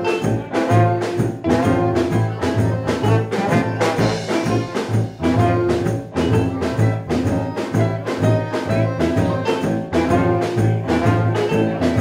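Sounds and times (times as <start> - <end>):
accordion: 0.0 - 12.0
brass horn: 0.0 - 12.0
drum kit beat: 0.0 - 12.0
electric guitar: 0.0 - 12.0
tuba bass line: 0.0 - 12.0.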